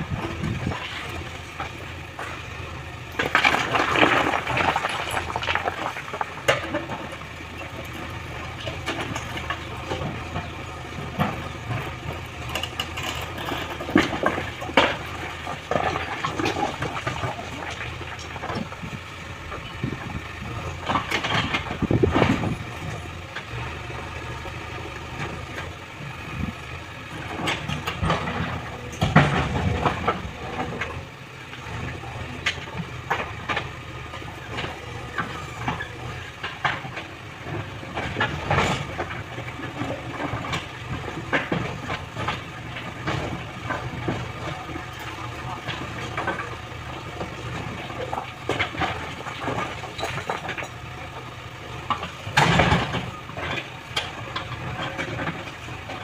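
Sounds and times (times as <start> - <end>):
diesel engine running: 0.0 - 56.0
rocks clattering and scraping: 3.2 - 18.8.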